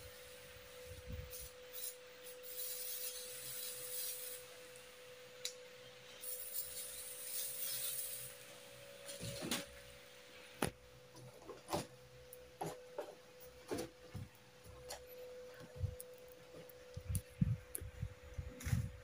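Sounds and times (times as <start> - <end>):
rasping hiss of electrode sparking: 0.0 - 10.8.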